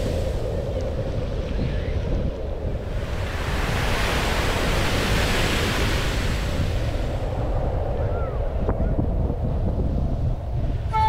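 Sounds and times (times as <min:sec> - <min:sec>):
wind buffeting microphone: 0:00.0 - 0:11.0
waves washing against rocks: 0:03.0 - 0:07.1.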